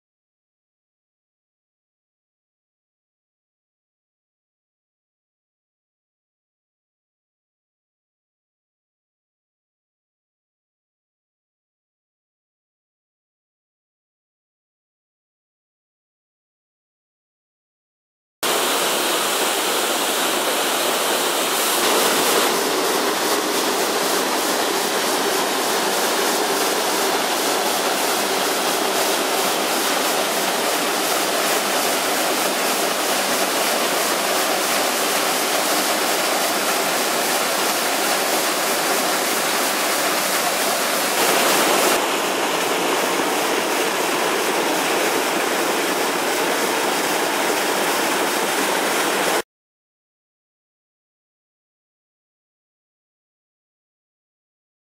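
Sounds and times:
waterfall rushing over rock: 18.4s - 49.4s.

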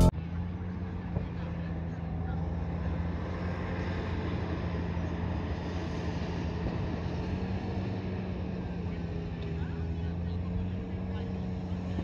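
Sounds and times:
engine droning: 0.0s - 1.2s.

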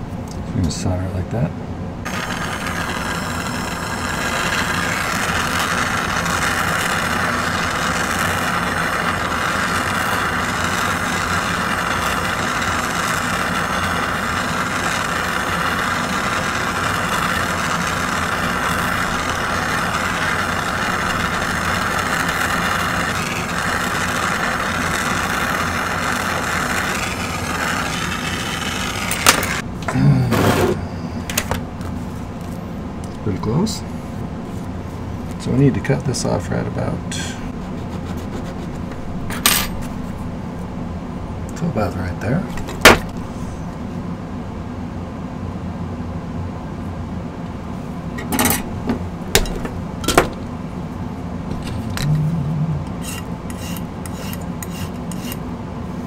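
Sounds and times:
torch flame hissing: 2.0s - 29.7s, 42.5s - 43.7s, 51.4s - 56.0s.

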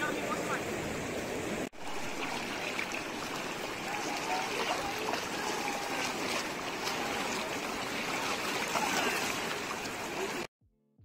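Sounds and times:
river rushing over rocks: 0.0s - 10.5s
water splashing around wading legs: 1.8s - 10.5s.

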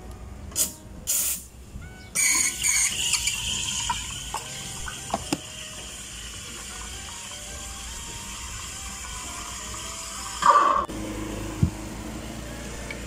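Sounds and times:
running water: 3.0s - 10.8s.

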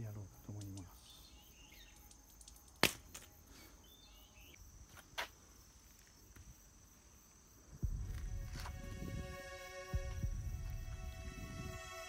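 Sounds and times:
faint chirps: 0.0s - 2.8s, 3.4s - 4.6s
high-pitched insect drone: 0.0s - 4.9s, 7.0s - 12.0s
sharp clicks: 1.9s - 3.0s.

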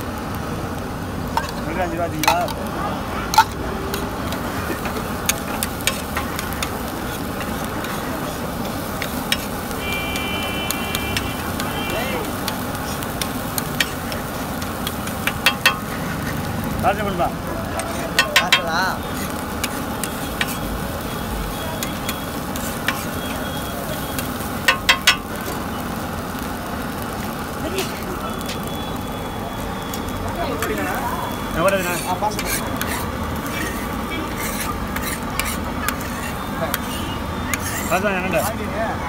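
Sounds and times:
steady sizzling hiss: 0.0s - 38.7s
metal spatula scraping on griddle: 1.3s - 2.6s, 3.3s - 26.5s, 27.2s - 29.1s, 29.9s - 38.7s
spatula clacks on iron: 12.3s - 16.0s, 17.8s - 20.6s, 24.6s - 25.2s.

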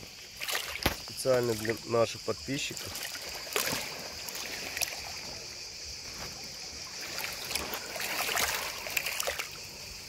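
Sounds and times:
waves lapping on pebbles: 0.1s - 10.0s.

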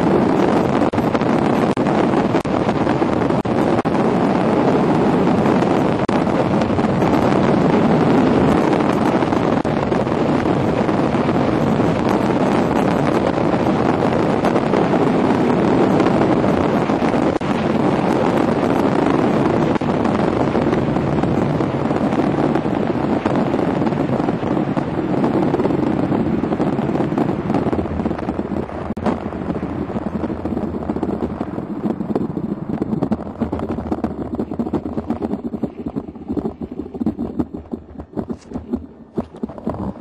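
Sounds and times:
wind on microphone: 0.0s - 40.0s
sled runners rushing on ice: 32.8s - 40.0s.

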